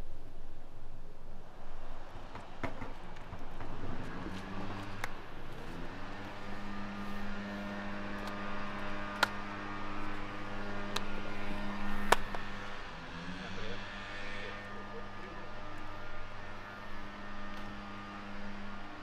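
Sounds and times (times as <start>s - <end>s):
steady low hum: 4.5s - 19.0s.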